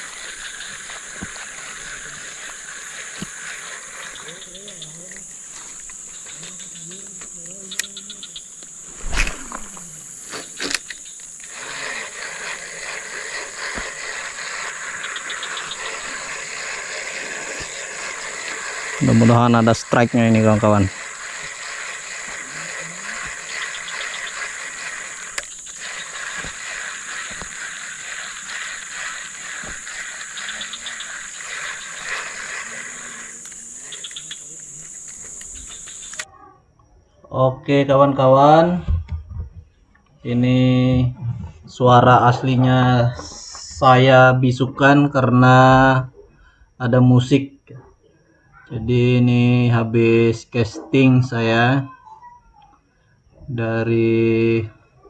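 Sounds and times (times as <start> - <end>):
high-pitched insect drone: 0.0 - 36.3
even rushing noise: 8.8 - 10.7
fast ticking: 11.0 - 36.2.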